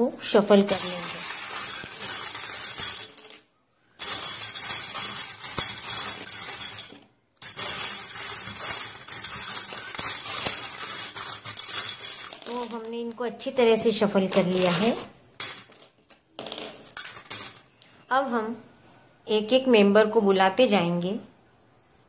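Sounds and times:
bangles jangling in a steel bowl: 0:00.7 - 0:03.4, 0:04.0 - 0:12.9, 0:14.3 - 0:17.7.

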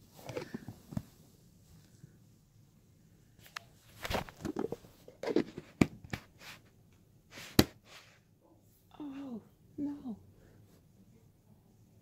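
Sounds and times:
rustling: 0:03.2 - 0:08.3
plastic containers clicking and knocking: 0:04.1 - 0:06.2.

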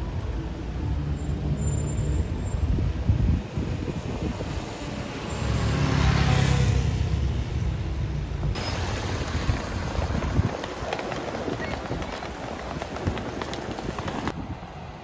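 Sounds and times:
street traffic noise: 0:00.0 - 0:15.0
vehicle passing on wet road: 0:08.6 - 0:14.3.

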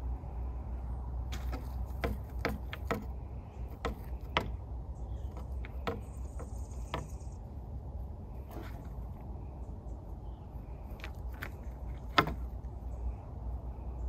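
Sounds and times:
low steady rumble: 0:00.0 - 0:14.0
cat scratching in soil: 0:01.3 - 0:09.5, 0:10.7 - 0:12.9.

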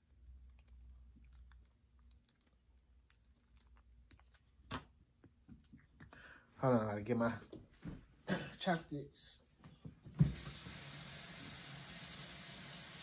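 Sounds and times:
quiet chewing: 0:00.0 - 0:06.4.

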